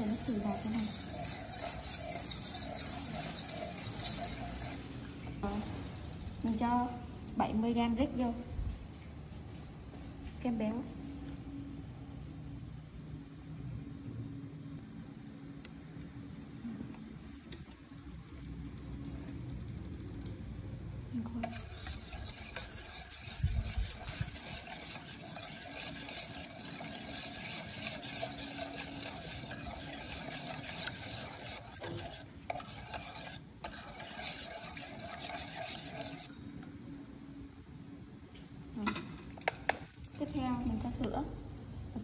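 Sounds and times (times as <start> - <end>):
whisk scraping metal bowl: 0.0 - 5.4, 21.4 - 36.3.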